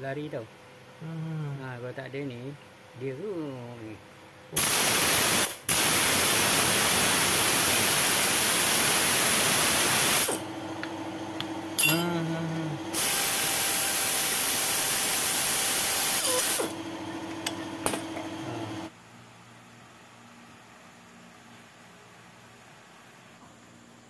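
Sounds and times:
pneumatic tool air hiss: 0:04.6 - 0:10.4, 0:12.9 - 0:16.7
low steady hum: 0:10.4 - 0:13.0.

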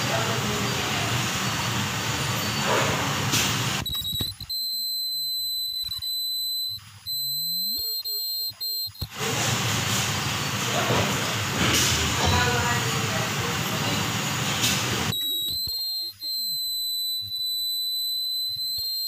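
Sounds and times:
high-pitched tone: 0:03.8 - 0:09.1, 0:15.1 - 0:19.0.

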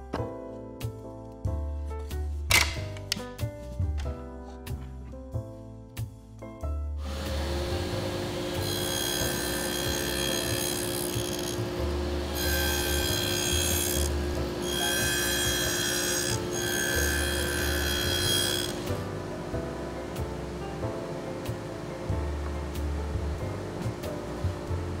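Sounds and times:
music: 0:00.0 - 0:25.0
saw blade whining through wood: 0:07.0 - 0:19.0
table saw humming: 0:07.0 - 0:19.1.

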